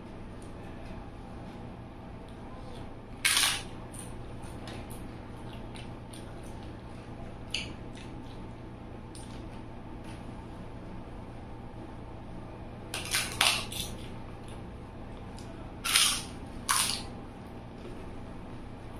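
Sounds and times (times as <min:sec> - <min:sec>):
crisp wafer crunching: 0:13.0 - 0:14.6, 0:15.8 - 0:17.1.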